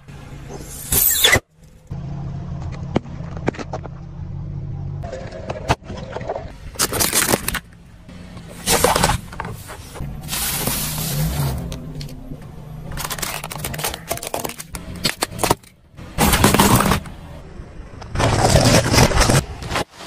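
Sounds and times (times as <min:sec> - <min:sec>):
car tyre crushing objects: 0:05.4 - 0:20.0
car engine humming: 0:07.4 - 0:18.2.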